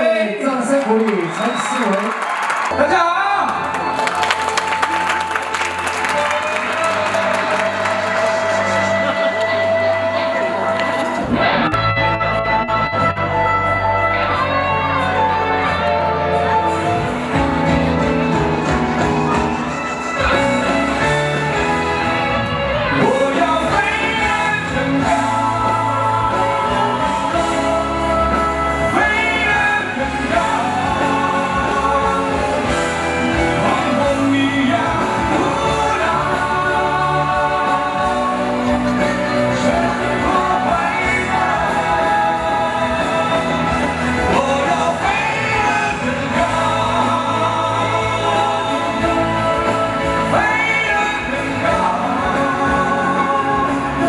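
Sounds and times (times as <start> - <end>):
instrumental accompaniment: 2.7 - 54.0
man singing into microphone: 5.7 - 10.8, 23.0 - 54.0.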